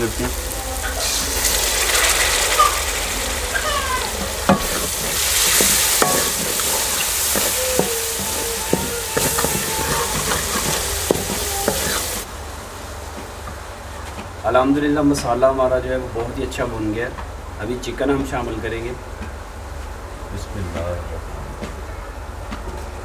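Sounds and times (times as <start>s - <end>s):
masala sizzling in a pan: 0.0s - 15.8s
wooden spoon scraping a pan: 4.0s - 12.3s.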